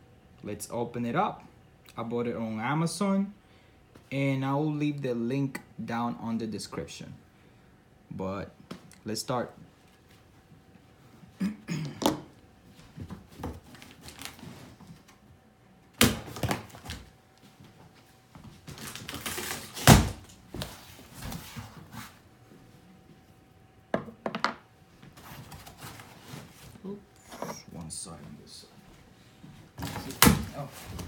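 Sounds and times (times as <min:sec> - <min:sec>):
cardboard scraping and rustling: 0:13.1 - 0:15.0.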